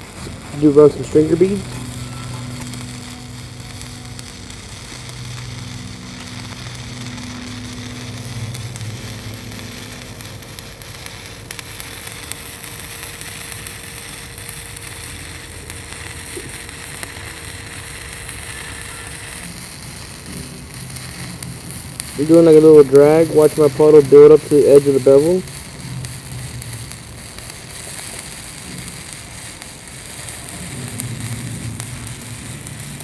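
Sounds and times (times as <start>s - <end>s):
welding arc crackling sizzle: 0.0s - 33.0s.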